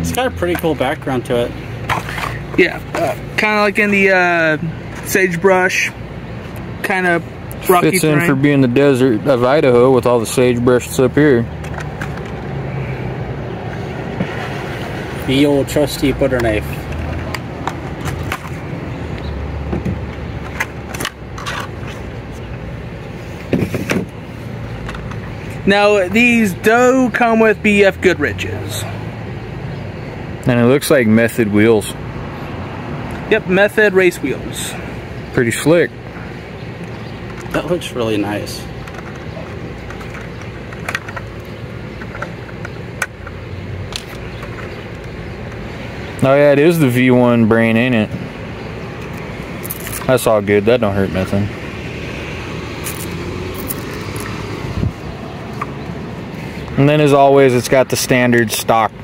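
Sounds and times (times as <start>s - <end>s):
sharp clicks and knocks: 38.8s - 45.6s.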